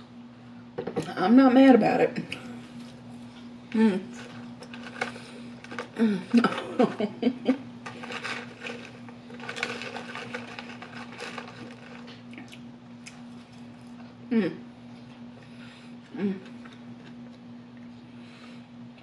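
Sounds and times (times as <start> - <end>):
low electrical hum: 0.0 - 19.0
chewing and mouth clicks: 12.0 - 13.7.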